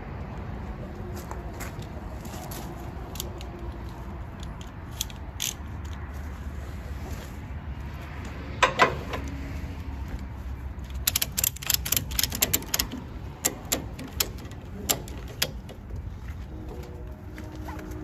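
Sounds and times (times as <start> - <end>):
ratchet strap clacks: 3.1 - 6.0, 10.8 - 16.0
ratchet clicks: 4.4 - 6.0, 10.9 - 15.8.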